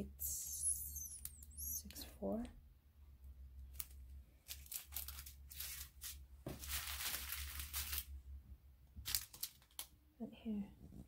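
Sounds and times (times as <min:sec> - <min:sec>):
plastic bags crinkling: 0:03.7 - 0:08.2, 0:09.0 - 0:10.0.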